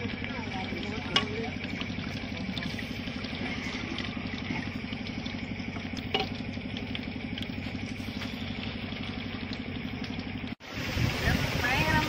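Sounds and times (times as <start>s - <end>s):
motor idling: 0.0s - 12.0s.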